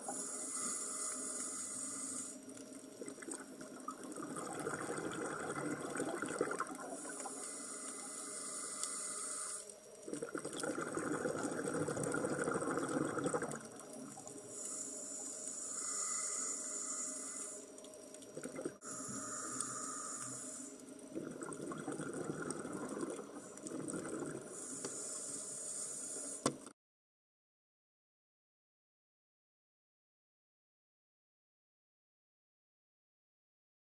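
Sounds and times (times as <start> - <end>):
regulator hissing inhalation: 0.0 - 2.6, 6.9 - 9.7, 14.4 - 17.8, 18.8 - 21.0, 23.3 - 26.6
bubbling exhalation: 3.0 - 7.2, 10.1 - 14.3, 21.1 - 24.5.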